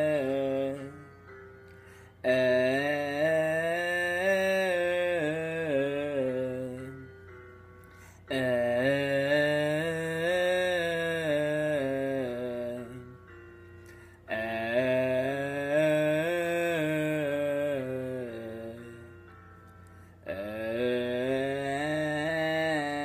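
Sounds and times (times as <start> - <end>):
man singing vocal exercise: 0.0 - 1.1, 2.2 - 7.1, 8.3 - 13.2, 14.3 - 19.1, 20.3 - 23.0.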